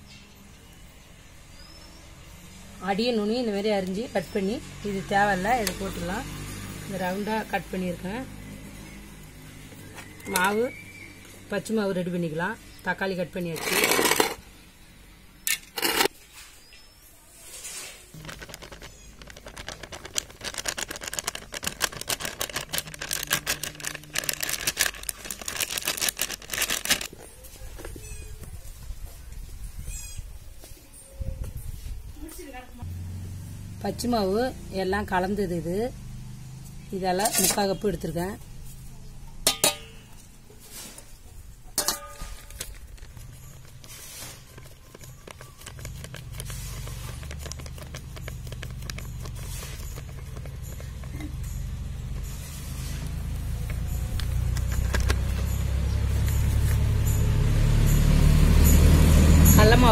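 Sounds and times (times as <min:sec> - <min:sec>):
flour packet crinkling: 0:17.8 - 0:27.2, 0:42.2 - 0:51.4
metal cup clinking on bowl: 0:39.4 - 0:40.0, 0:41.8 - 0:42.6.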